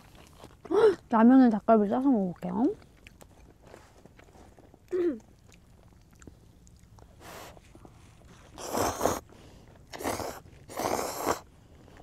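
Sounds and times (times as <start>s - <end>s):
noodles being slurped: 7.1s - 12.0s.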